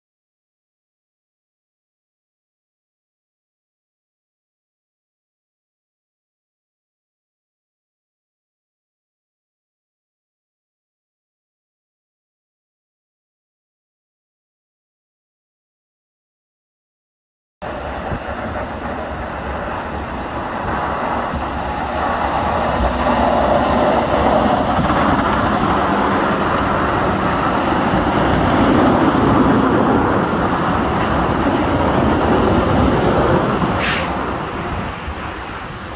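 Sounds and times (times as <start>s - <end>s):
snowplow truck engine rumble: 17.6s - 35.9s
wheels and blades hissing in slush: 17.7s - 35.9s.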